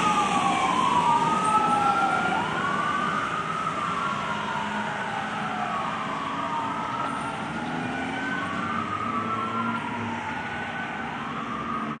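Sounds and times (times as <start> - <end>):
fire engine siren wailing: 0.0 - 12.0
second siren wailing: 0.0 - 12.0.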